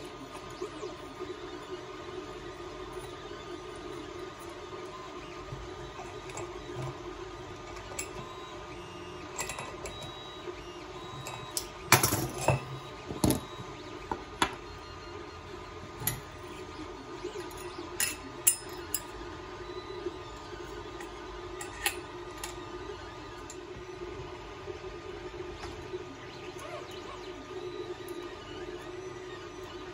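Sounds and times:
three d printer humming: 0.0s - 29.9s.

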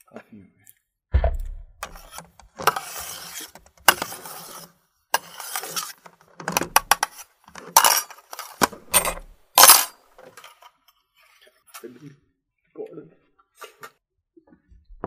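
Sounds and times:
crockery and cutlery clattering: 6.5s - 10.4s.

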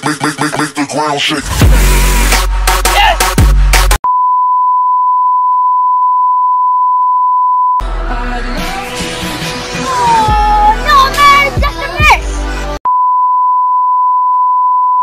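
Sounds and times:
background music: 0.0s - 4.0s, 7.8s - 12.8s
steady test tone beep: 4.1s - 7.8s, 12.9s - 15.0s.

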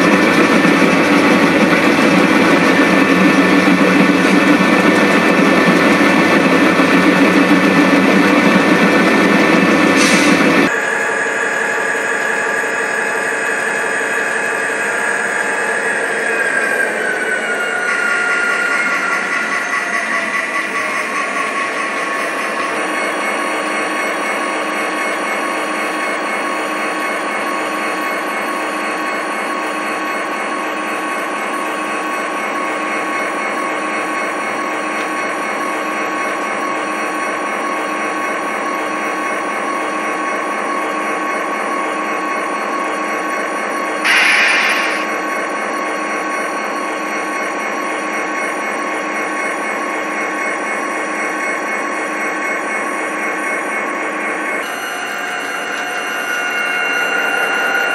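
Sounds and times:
model train whirring drone: 0.0s - 57.9s
brief loud burst: 44.1s - 45.1s.

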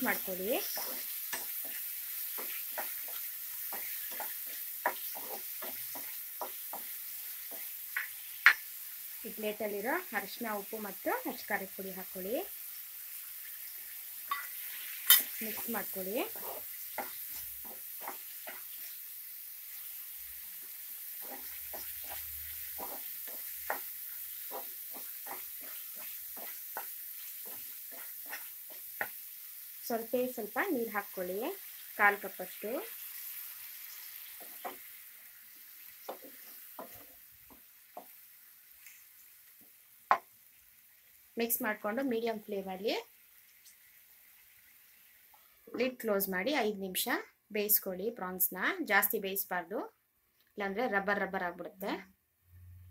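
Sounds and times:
spatula scraping and tapping pan: 0.0s - 8.7s, 14.2s - 19.0s, 20.5s - 29.2s, 34.0s - 35.0s, 35.8s - 38.2s
prawns sizzling in hot oil: 0.0s - 46.8s.

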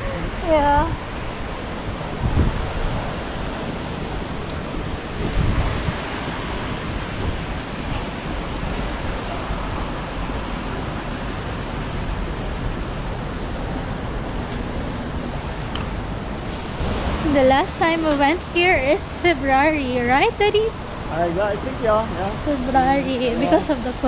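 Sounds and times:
wind buffeting microphone: 0.0s - 24.0s
fountain jets splashing: 6.5s - 24.0s.

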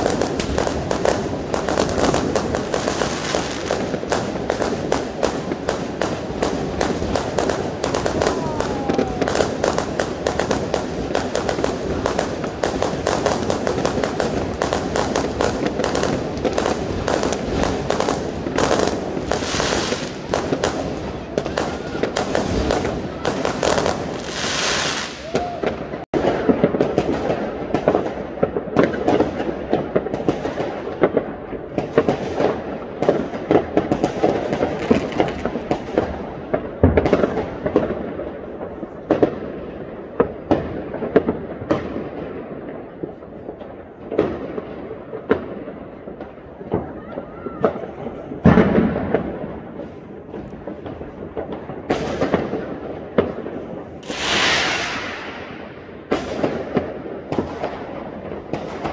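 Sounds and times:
fireworks hissing bursts: 0.0s - 26.0s, 53.5s - 55.8s
fireworks crackling: 0.0s - 58.9s
loud echoing firework bangs: 0.0s - 58.9s.

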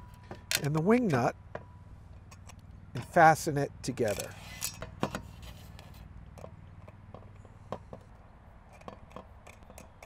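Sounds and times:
metal clicks and taps: 0.2s - 3.1s.

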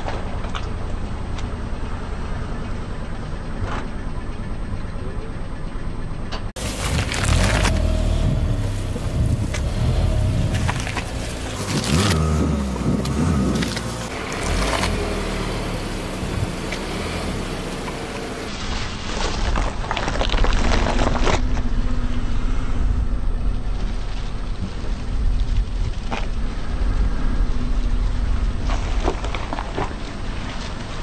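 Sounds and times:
car engine low hum: 0.0s - 31.0s
gourds cracking and crunching: 6.6s - 21.7s.

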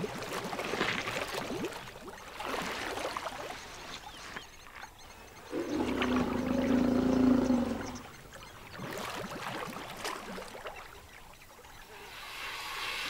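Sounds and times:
water sucked up and dripping: 5.5s - 8.1s
elephant moaning with deep rumble: 5.5s - 8.2s.

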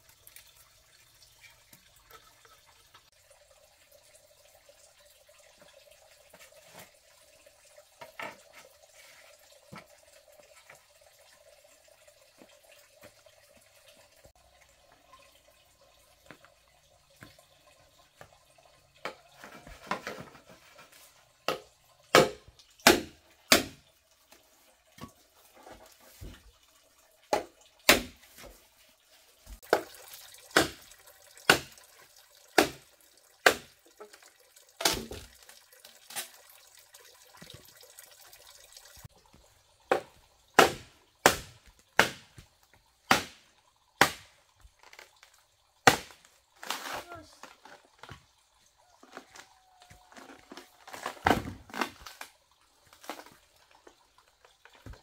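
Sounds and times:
machete chopping bamboo: 21.5s - 23.8s, 27.4s - 28.2s, 30.5s - 30.8s, 31.5s - 31.8s, 32.6s - 33.7s, 40.6s - 42.3s, 43.1s - 44.4s, 45.8s - 46.2s.

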